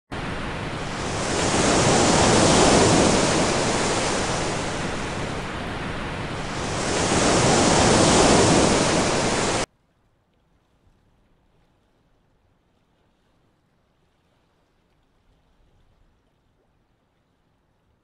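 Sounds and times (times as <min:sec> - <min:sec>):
waves washing in: 0:00.1 - 0:09.7.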